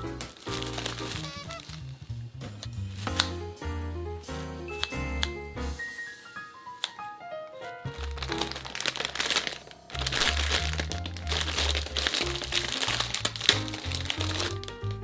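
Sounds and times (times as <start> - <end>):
plastic packaging crinkling: 0.0 - 2.0, 7.8 - 15.0
light background music: 0.0 - 15.0.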